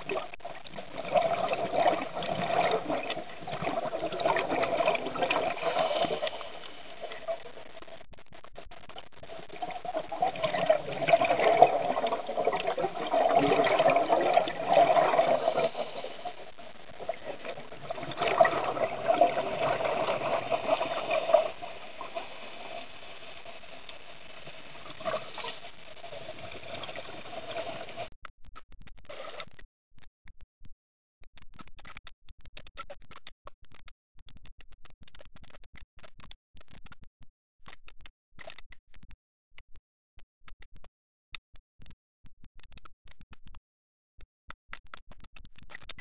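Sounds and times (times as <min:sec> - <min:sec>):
underwater bubbling rush: 0:00.0 - 0:28.1.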